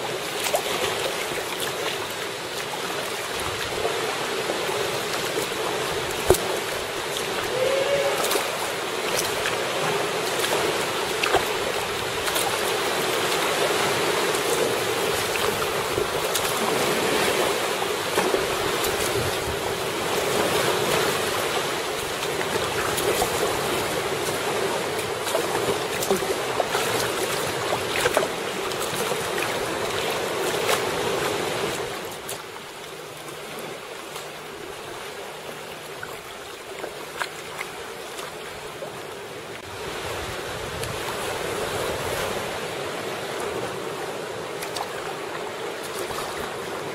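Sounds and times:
water sloshing against kayak hull: 0:00.0 - 0:46.9
wind on microphone: 0:13.7 - 0:24.8.

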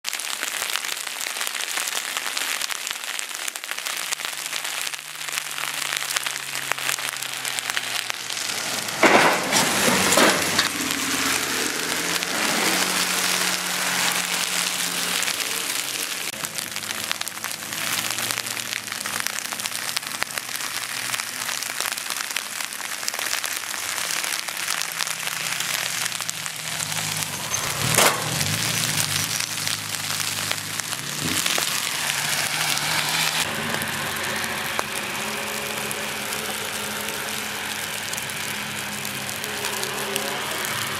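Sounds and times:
heavy rain and sleet hissing: 0:00.0 - 0:40.9
race car engines droning past: 0:05.6 - 0:19.5, 0:25.8 - 0:40.9
cracks and bangs: 0:08.7 - 0:11.6, 0:25.6 - 0:33.8
car hitting steel guardrail: 0:08.8 - 0:11.0, 0:27.5 - 0:28.8.

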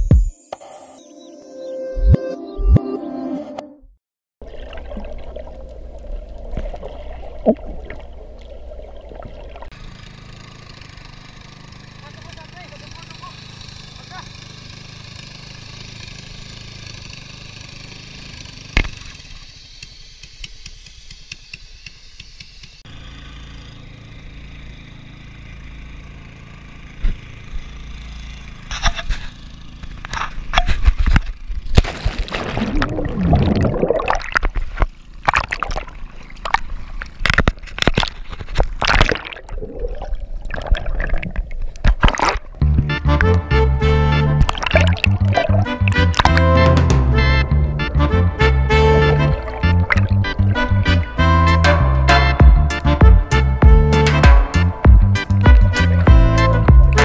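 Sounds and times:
bubbles gurgling: 0:04.4 - 0:09.7, 0:32.0 - 0:37.2, 0:38.8 - 0:42.7, 0:44.4 - 0:46.4, 0:49.4 - 0:50.8
water splashing and bubbling: 0:04.4 - 0:09.8, 0:31.8 - 0:42.8, 0:44.3 - 0:46.5, 0:49.3 - 0:50.8
knocks and scrapes: 0:28.7 - 0:32.3.

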